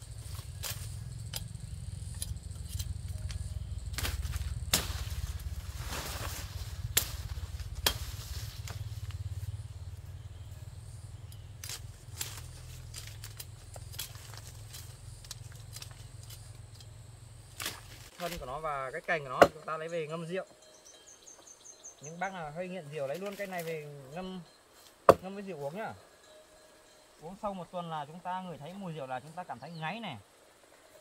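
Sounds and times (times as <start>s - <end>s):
low rumble: 0.0s - 13.4s
branches snapping and breaking: 0.2s - 1.5s, 2.1s - 9.2s, 11.6s - 16.5s, 17.5s - 18.5s, 23.1s - 23.8s
rustling: 2.0s - 9.6s.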